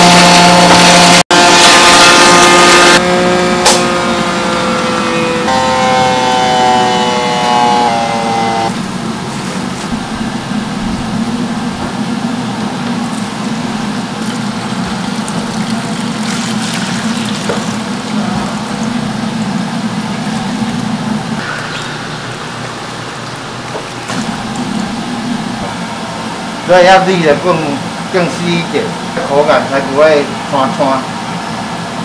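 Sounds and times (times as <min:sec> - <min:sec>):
electric grinder humming: 0:00.0 - 0:09.0
water pouring and splashing: 0:12.9 - 0:19.0.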